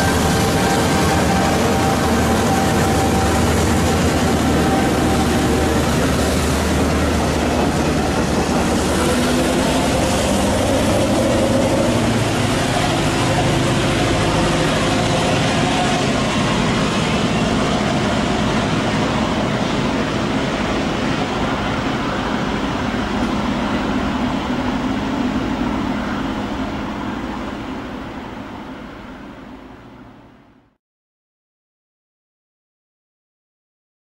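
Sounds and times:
diesel locomotive rumbling: 0.0s - 30.7s.

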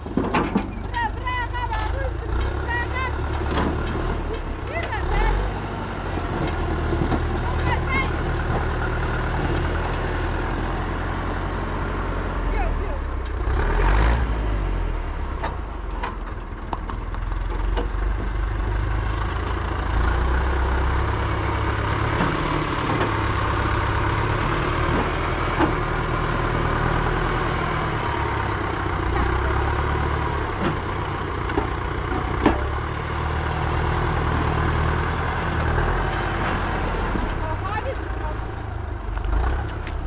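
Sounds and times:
vehicle engine rumbling: 0.0s - 40.0s.

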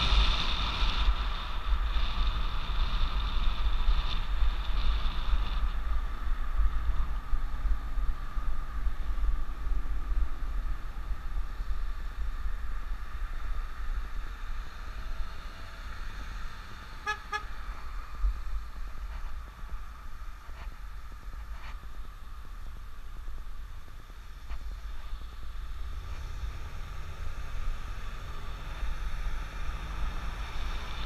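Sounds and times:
road noise: 0.0s - 31.0s
wind rumbling on microphone: 0.0s - 31.0s
horn toots: 17.0s - 17.6s.

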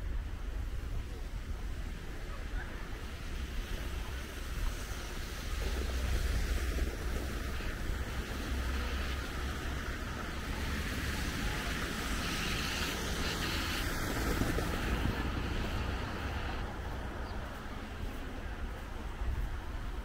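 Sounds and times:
city traffic: 0.0s - 20.0s
wind rumble on microphone: 0.0s - 20.0s
vehicle passing: 5.7s - 19.9s.

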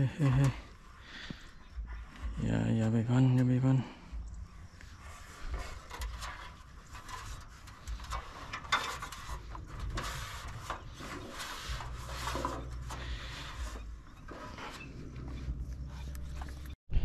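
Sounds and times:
gear rubbing and knocking: 4.9s - 16.8s.

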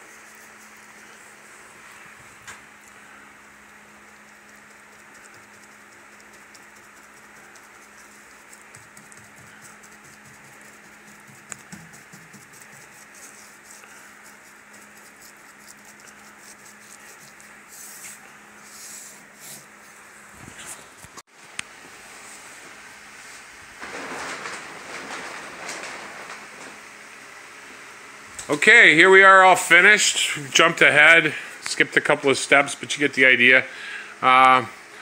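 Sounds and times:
steady hiss and low hum: 0.0s - 35.0s
brush strokes ticking: 3.6s - 19.7s
brush swishes: 4.3s - 20.9s.

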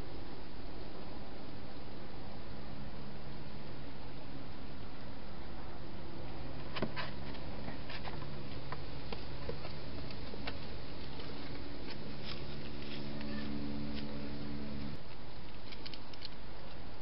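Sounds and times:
steady hiss with low hum: 0.0s - 17.0s
hedgehog clicks and crackles: 15.0s - 16.8s.

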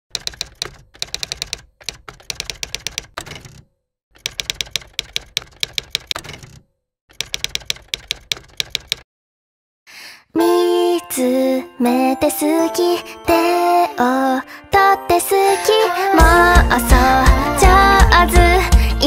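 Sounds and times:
typewriter key clacks: 0.1s - 9.0s.

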